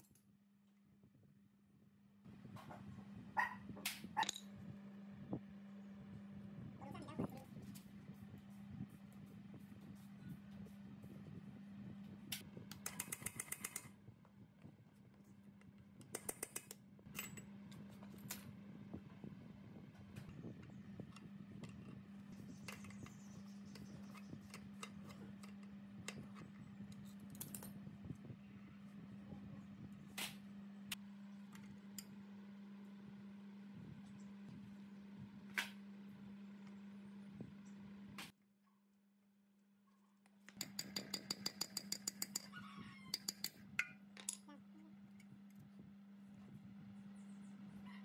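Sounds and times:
steady low hum: 0:00.9 - 0:38.4, 0:40.6 - 0:48.0
wrench and hammer tapping metal: 0:16.2 - 0:17.4, 0:40.5 - 0:42.5, 0:43.1 - 0:44.4.

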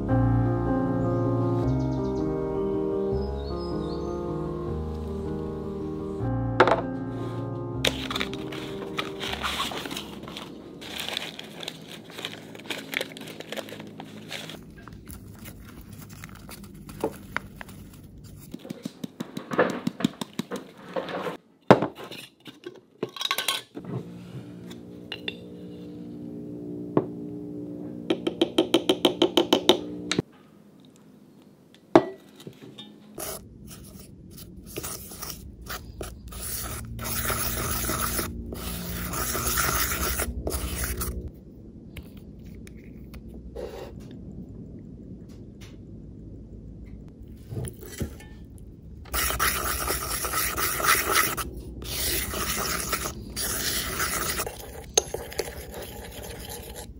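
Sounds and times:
paper bag rustling: 0:07.9 - 0:18.5
spoon scraping against bowl: 0:32.8 - 0:34.1, 0:34.7 - 0:41.2, 0:49.1 - 0:56.9
powder poured into bowl: 0:49.1 - 0:56.9.

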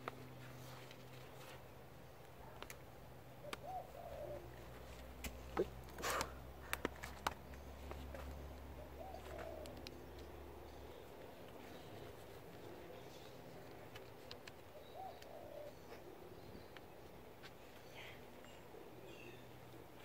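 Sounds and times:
dove cooing: 0:03.4 - 0:04.7, 0:08.1 - 0:10.2, 0:14.7 - 0:16.5.

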